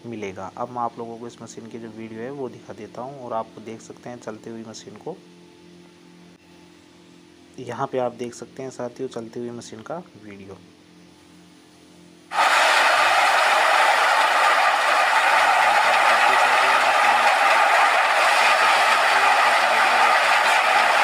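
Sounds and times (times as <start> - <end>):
grain thresher running: 12.3 - 21.0.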